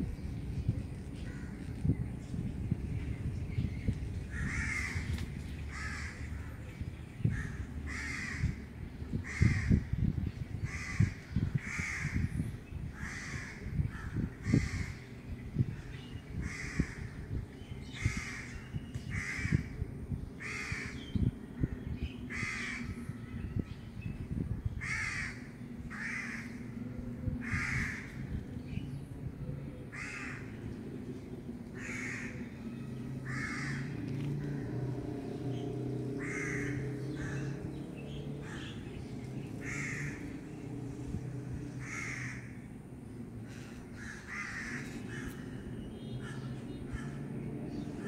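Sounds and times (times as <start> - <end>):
low rumbling: 0.0 - 48.0
crow cawing: 4.3 - 5.1, 7.4 - 8.6, 24.8 - 26.5, 27.4 - 28.1, 31.8 - 32.4, 33.2 - 33.9, 36.2 - 37.6, 39.6 - 40.2, 41.8 - 42.6, 43.5 - 45.4.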